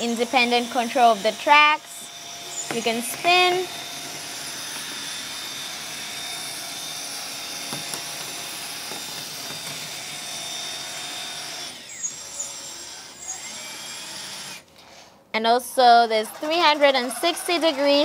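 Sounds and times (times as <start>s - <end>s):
toy excavator motor whine: 0.0s - 14.7s, 16.1s - 18.0s.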